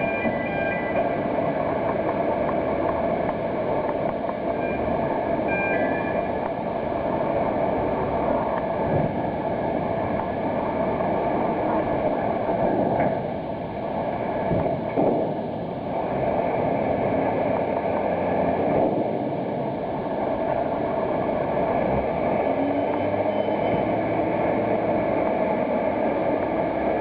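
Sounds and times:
container crane mechanical noise: 0:00.0 - 0:27.0
faint high whines: 0:04.5 - 0:06.6.

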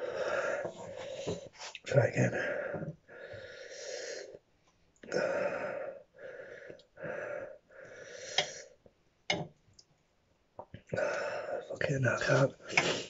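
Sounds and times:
man breathing hard: 0:00.0 - 0:01.7, 0:02.3 - 0:04.4, 0:05.1 - 0:08.8, 0:11.0 - 0:11.7.

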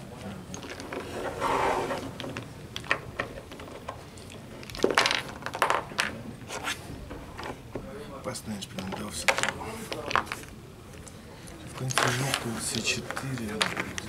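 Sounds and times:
chess pieces clacking: 0:00.5 - 0:06.8, 0:11.8 - 0:14.0
pieces scraping on wooden board: 0:00.6 - 0:02.4, 0:11.8 - 0:14.0.

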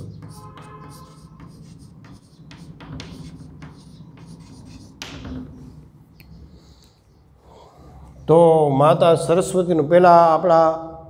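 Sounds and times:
chalk scratching on blackboard: 0:00.0 - 0:05.8.

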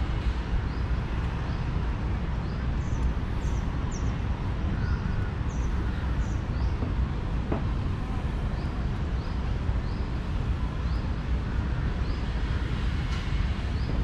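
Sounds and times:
distant city traffic rumble: 0:00.0 - 0:14.0.

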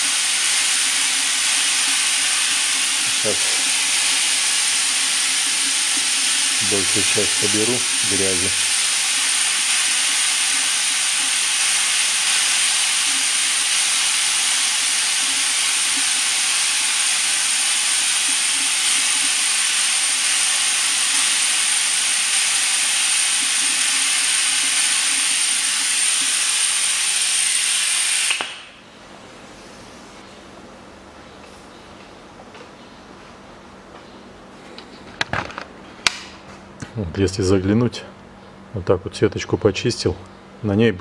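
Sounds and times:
suction extractor hissing: 0:00.0 - 0:28.8.

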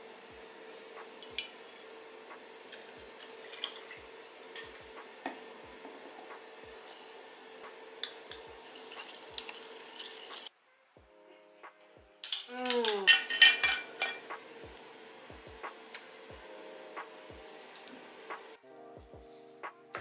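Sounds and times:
tea pouring into glass: 0:02.6 - 0:04.8, 0:06.0 - 0:10.5
spoon clinking against glass: 0:12.2 - 0:14.3.

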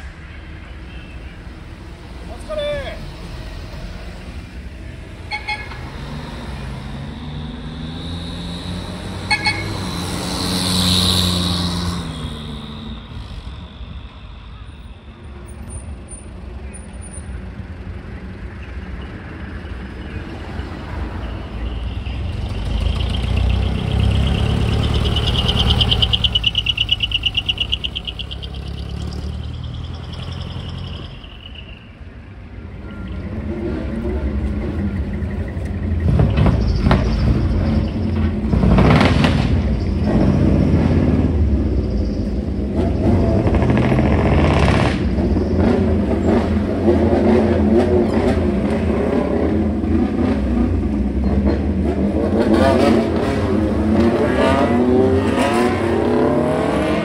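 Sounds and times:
truck engines revving: 0:00.0 - 0:57.0.

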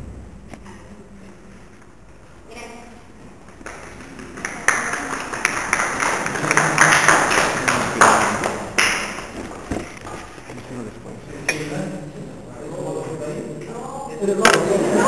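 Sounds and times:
people clapping: 0:03.5 - 0:10.4.

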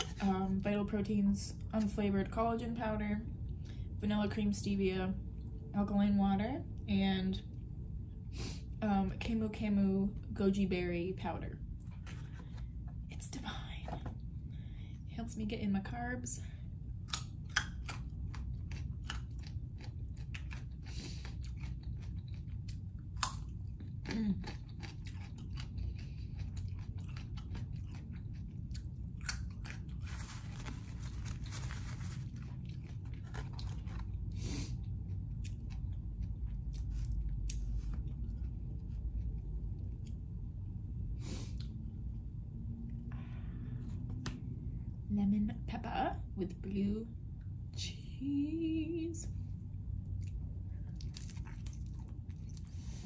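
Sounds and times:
steady low hum: 0:00.0 - 0:53.0
chewing crunchy carrot: 0:17.0 - 0:40.2, 0:50.0 - 0:53.0.

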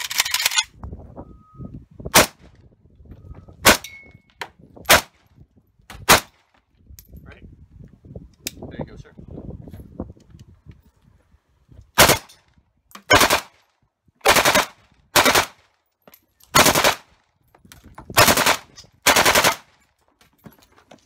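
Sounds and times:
automatic rifle bursts: 0:18.2 - 0:19.7.

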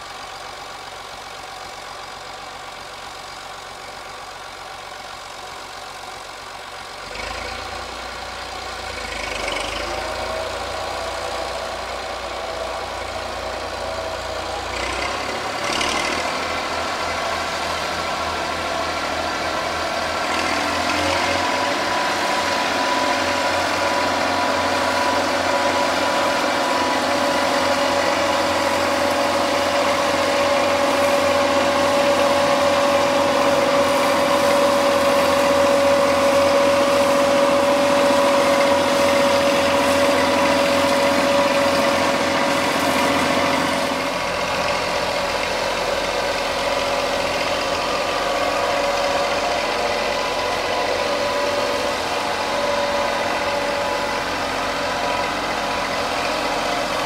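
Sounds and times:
tractor engine running: 0:00.0 - 0:57.0
flail mulcher cutting grass: 0:08.8 - 0:57.0
steady high whine: 0:44.0 - 0:57.0.

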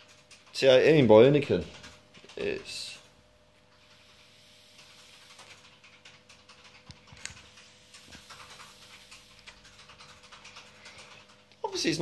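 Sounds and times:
e-cigarette coil crackling: 0:04.0 - 0:05.5.

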